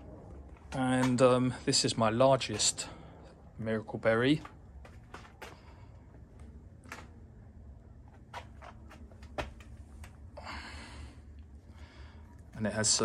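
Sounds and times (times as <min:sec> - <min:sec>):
low rumble: 0:00.0 - 0:03.7.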